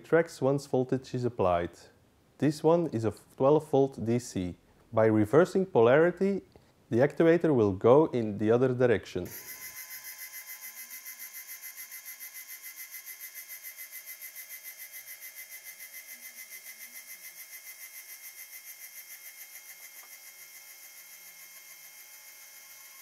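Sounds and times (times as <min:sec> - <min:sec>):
electric motor whine with pulsing: 0:09.3 - 0:23.0.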